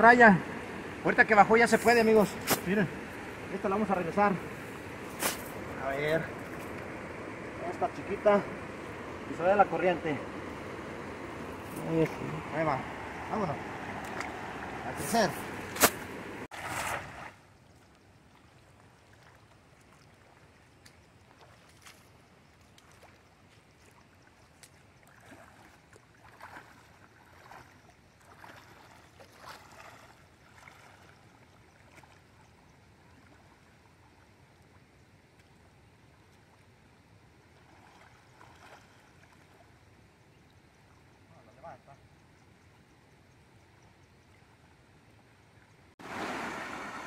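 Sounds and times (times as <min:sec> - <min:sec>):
river current rushing: 0:00.0 - 0:17.4, 0:46.0 - 0:47.0
net splashing and dripping water: 0:13.8 - 0:32.4, 0:37.5 - 0:39.8, 0:46.0 - 0:47.0.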